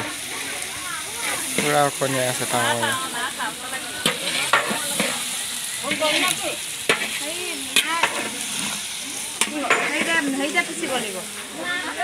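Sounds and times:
food frying and sizzling: 0:00.0 - 0:12.0
metal ladle scraping pan: 0:04.0 - 0:11.4.

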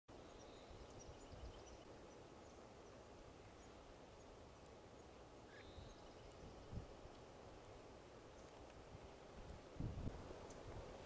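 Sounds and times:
distant bird chirps: 0:00.1 - 0:06.9.

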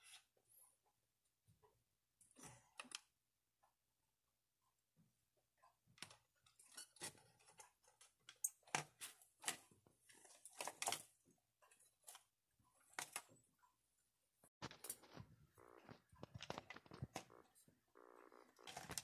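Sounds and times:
plastic bottle crinkling: 0:14.6 - 0:17.3.

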